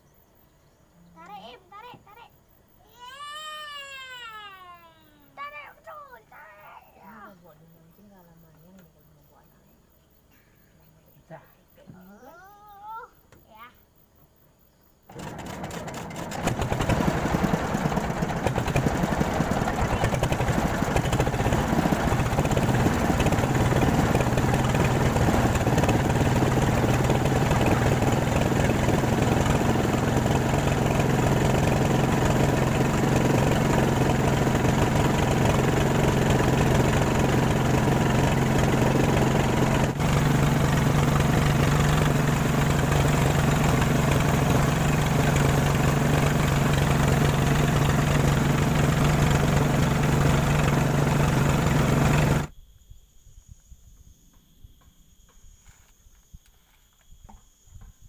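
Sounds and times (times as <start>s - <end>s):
motorboat engine droning: 15.1s - 52.5s.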